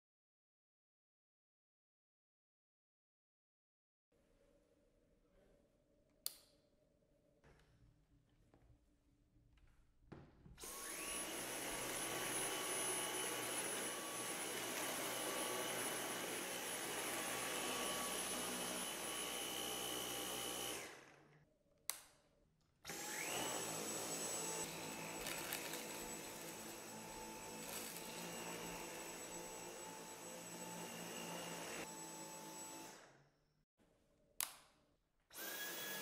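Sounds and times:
vacuum cleaner motor whining: 10.6 - 21.2, 22.9 - 33.2, 35.3 - 36.0.

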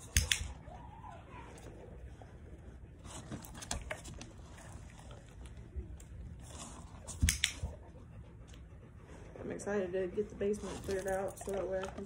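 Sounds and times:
dog chewing treat: 10.6 - 12.0.

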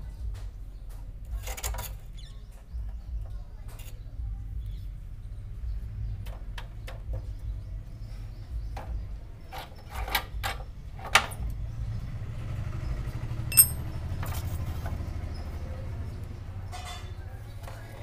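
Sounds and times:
bright metallic clink: 13.5 - 14.0
metal spanners clicking and knocking: 13.5 - 14.6.

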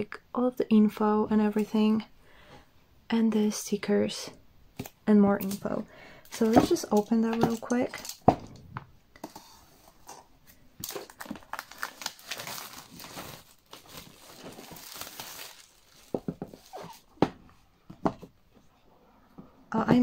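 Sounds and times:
plastic wrap crinkling and tearing: 10.8 - 17.1.

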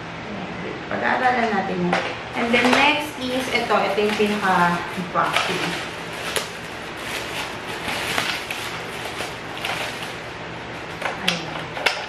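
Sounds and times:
plastic bag crinkling: 2.4 - 11.3.

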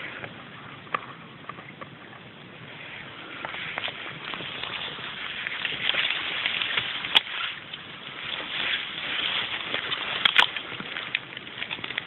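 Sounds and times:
leafy plants rustling: 2.6 - 12.0.

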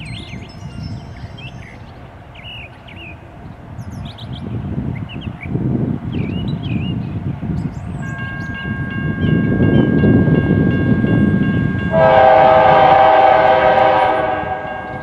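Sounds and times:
diesel locomotive engine rumble: 0.0 - 15.0
train horn long blast: 11.8 - 15.0.

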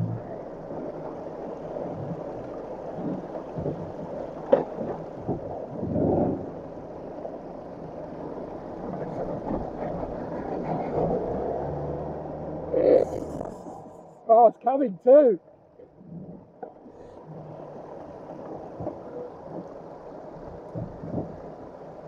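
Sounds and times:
vehicle engine rumble: 0.0 - 14.7, 15.4 - 22.0
vehicle scraping on ground: 8.9 - 14.2.

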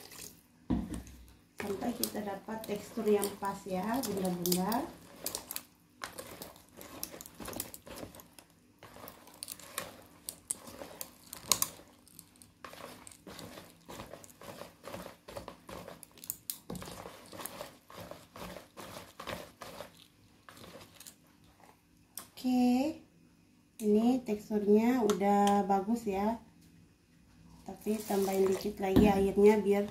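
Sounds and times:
whisk beating batter in bowl: 1.6 - 21.2.

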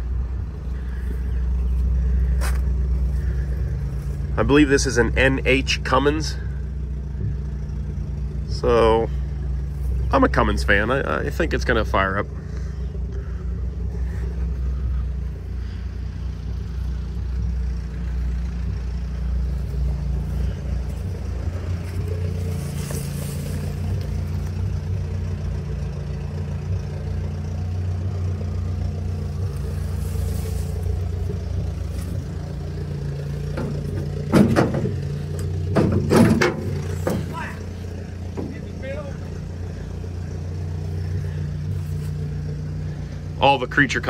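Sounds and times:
engine running steadily: 0.0 - 44.0
metal door clanking and rattling: 33.5 - 37.5.

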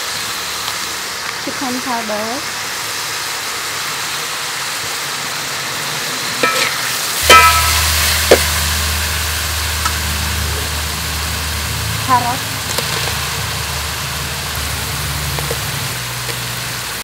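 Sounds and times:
ginger sizzling in a wok: 0.0 - 17.0
metal spatula clanking on pan: 6.4 - 8.5.

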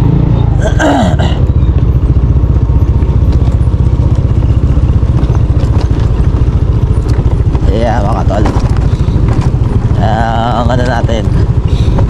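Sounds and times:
motor scooter engine: 0.0 - 12.0
rattling over stones: 3.0 - 12.0.

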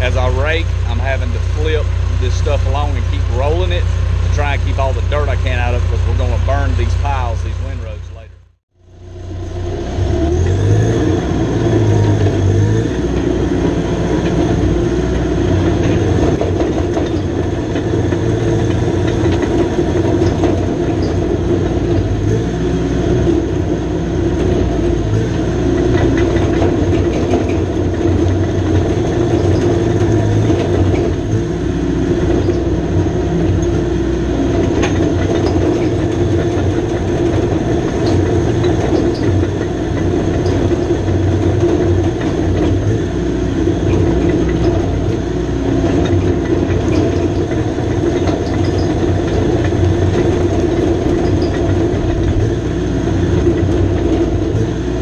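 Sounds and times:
diesel engine running: 0.0 - 55.0
steel tracks clanking: 10.3 - 55.0.

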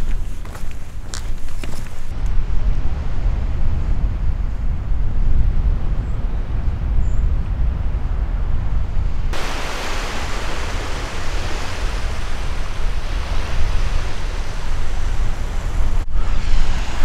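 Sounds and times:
wind rumbling on microphone: 0.0 - 17.0
steady rushing hiss: 9.3 - 17.0.

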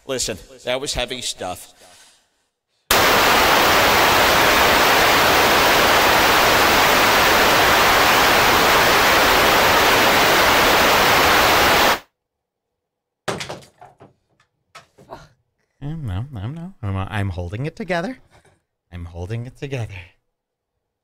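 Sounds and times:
loud static hiss: 2.9 - 12.1.

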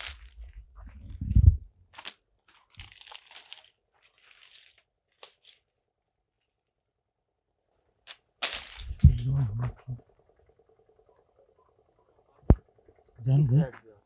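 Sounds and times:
footsteps crunching on dry leaves: 0.0 - 0.5, 2.0 - 5.6, 8.4 - 9.2.

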